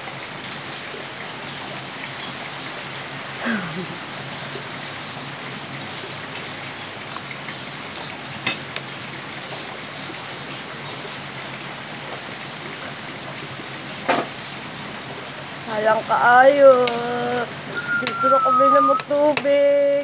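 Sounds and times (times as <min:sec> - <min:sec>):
rain on a metal roof: 0:00.0 - 0:20.0
spoons clinking against plates: 0:08.4 - 0:08.8.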